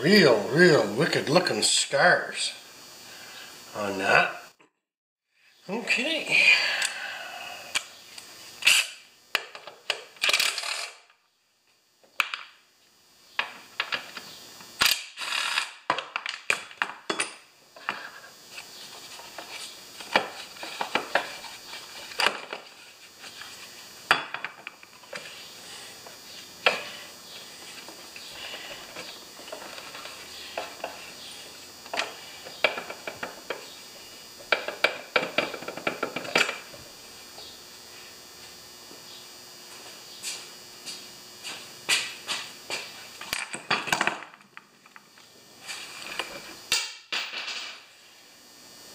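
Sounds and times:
cordless drill burst: 14.8s - 15.8s.

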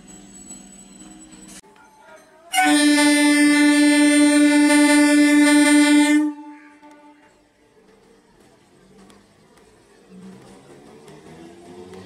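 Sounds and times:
train air horn blast: 2.5s - 7.3s.

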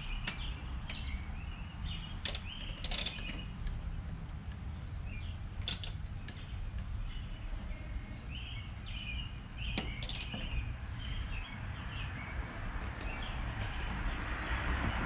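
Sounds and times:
socket ratchet clicking: 2.2s - 4.4s, 5.6s - 6.4s, 9.8s - 10.5s.

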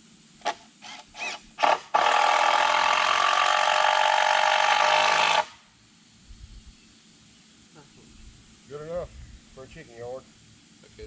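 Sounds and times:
cordless drill driving a screw: 0.4s - 5.5s.

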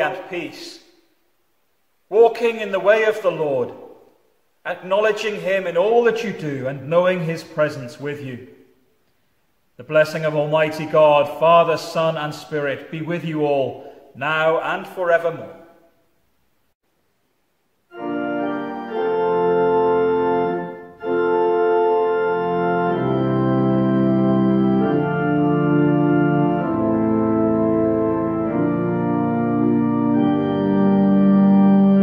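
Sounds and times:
organ playing sustained chords: 17.9s - 32.0s.

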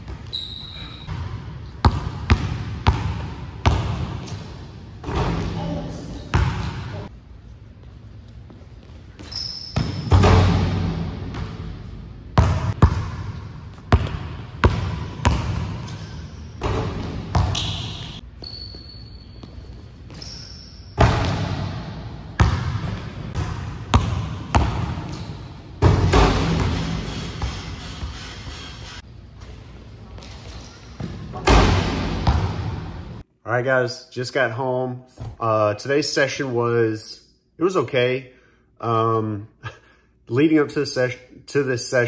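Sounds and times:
basketball bouncing: 0.0s - 7.0s, 8.8s - 28.2s, 31.0s - 33.2s
sneakers squeaking on court: 0.0s - 7.1s, 7.7s - 33.0s.

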